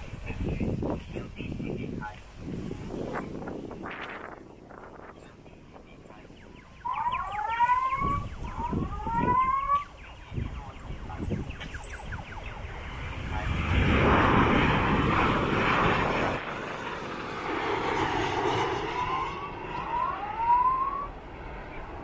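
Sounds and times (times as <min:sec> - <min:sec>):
jet airliner passing overhead: 0:00.0 - 0:22.0
rising whistle-like tones: 0:06.2 - 0:13.2, 0:18.4 - 0:22.0.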